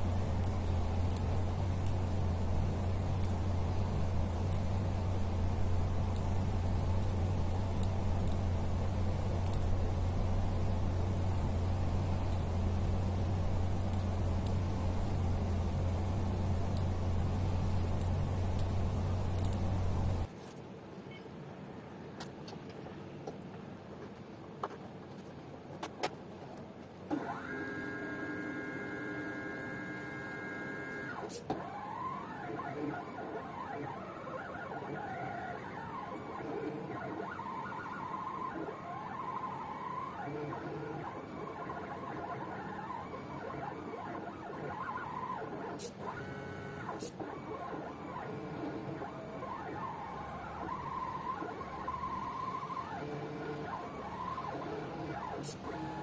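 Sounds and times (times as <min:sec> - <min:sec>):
faint clicks: 0:00.0 - 0:20.3
stepper motors whining: 0:00.0 - 0:20.3, 0:27.1 - 0:56.0.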